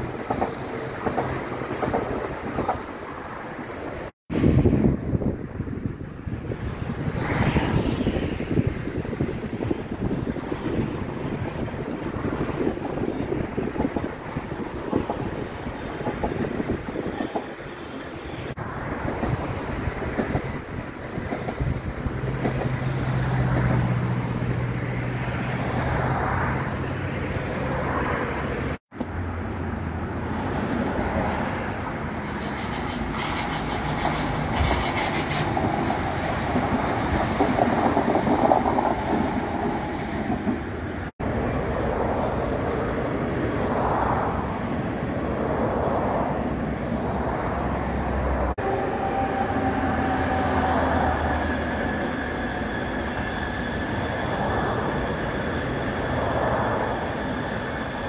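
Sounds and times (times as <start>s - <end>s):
trains clattering over rails: 0.0s - 4.1s, 9.1s - 26.6s, 30.2s - 47.8s.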